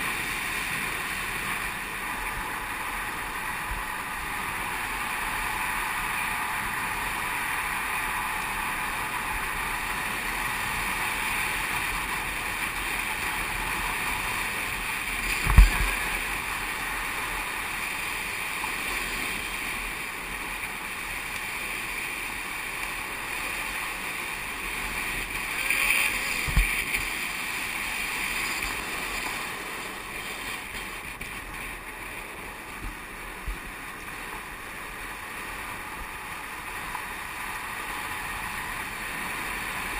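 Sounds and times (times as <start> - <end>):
longboard wheels rolling on asphalt: 0.0 - 39.9.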